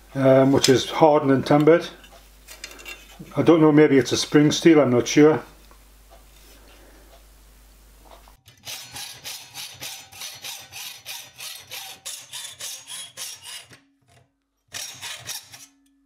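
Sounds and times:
hacksaw cutting steel plate: 8.4s - 16.0s.

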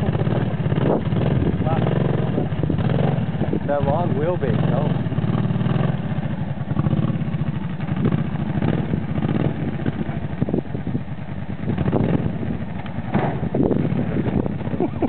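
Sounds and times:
engine running under load: 0.0s - 15.0s.

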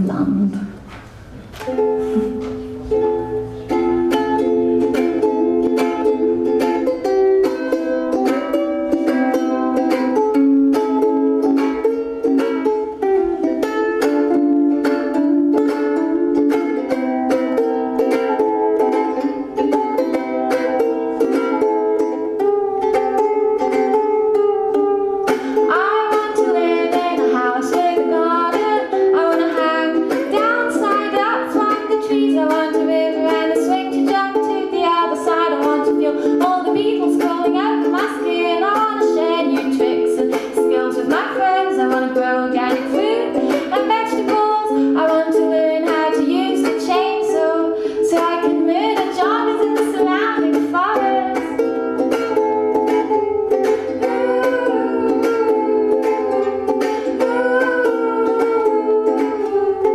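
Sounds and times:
ukulele strumming: 0.0s - 59.9s
woman singing: 24.6s - 51.8s, 53.6s - 59.9s.

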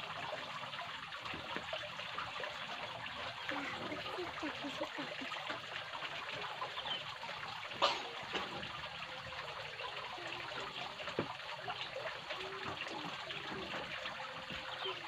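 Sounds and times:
water trickling: 0.0s - 15.0s.

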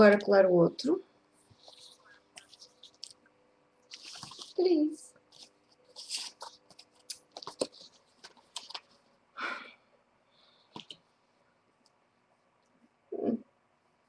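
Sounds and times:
paper rustle: 1.4s - 3.2s, 3.9s - 9.0s.

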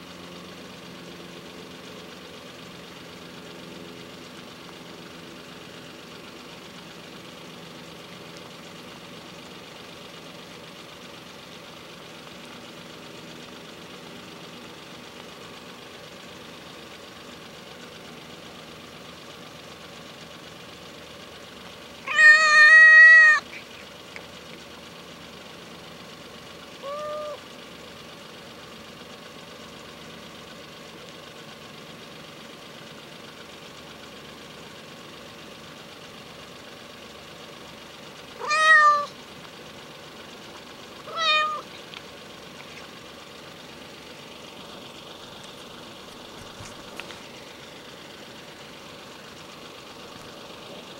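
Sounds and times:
cat meowing: 22.0s - 23.7s, 26.8s - 27.4s, 38.4s - 39.2s, 41.0s - 41.7s.

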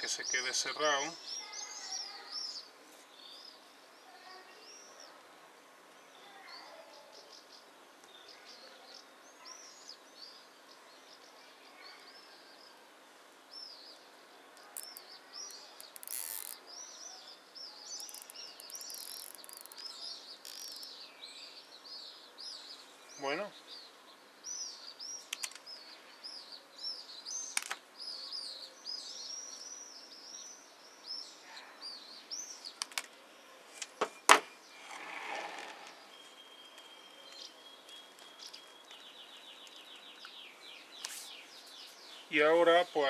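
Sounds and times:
small birds chirping: 0.0s - 43.0s
cable tie zip: 15.8s - 16.6s.

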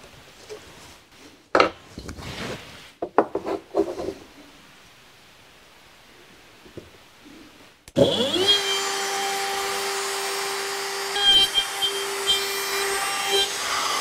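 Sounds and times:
router cutting wood: 8.0s - 14.0s
router whining: 8.0s - 14.0s.

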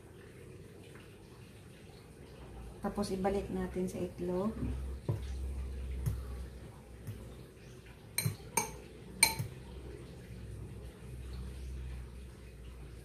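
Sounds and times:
faint low hum: 0.0s - 13.0s
clinks against a glass bowl: 8.2s - 9.6s.

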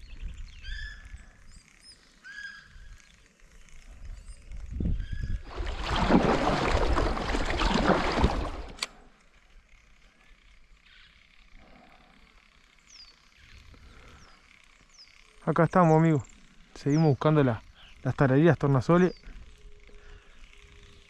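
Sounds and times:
bird calling: 0.0s - 3.2s, 10.8s - 11.4s
paddle splashing water: 5.5s - 8.9s.

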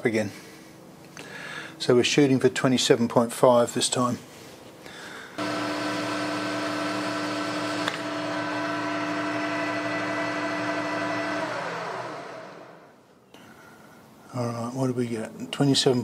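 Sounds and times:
metal lathe running: 5.4s - 12.9s
lathe winding down: 5.4s - 13.0s.

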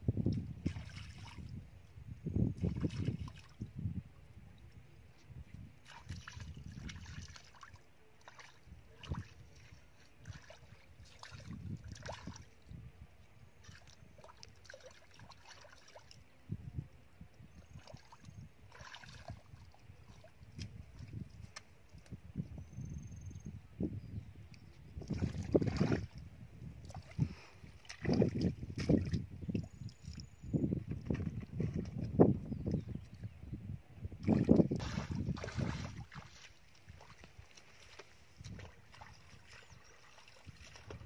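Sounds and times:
hands splashing in muddy puddle: 25.0s - 26.2s, 26.8s - 29.7s, 34.2s - 41.0s
bare feet squelching through mud: 26.9s - 30.2s, 34.2s - 41.0s.

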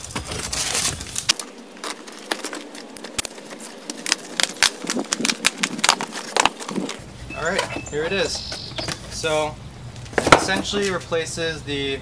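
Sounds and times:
cardboard flaps tapping and clicking: 0.0s - 7.0s
cardboard rustling: 0.0s - 9.4s.

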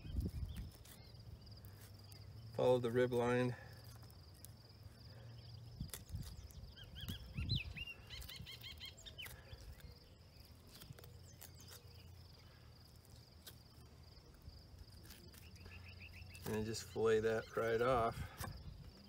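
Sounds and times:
insect trill: 0.0s - 19.0s
bird chirping: 3.8s - 19.0s.

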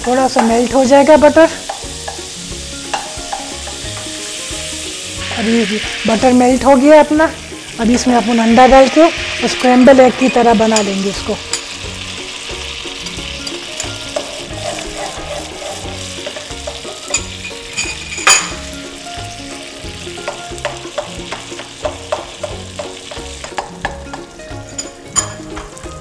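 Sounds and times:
eggs sizzling in butter: 0.0s - 26.0s
spatula knocking pot: 2.9s - 4.1s, 13.0s - 18.6s, 20.2s - 25.7s
spatula scraping a pot: 13.0s - 17.1s.

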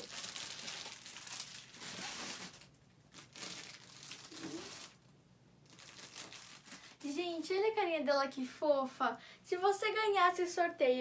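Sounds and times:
tissue paper crinkling: 0.0s - 5.1s, 5.7s - 7.0s.

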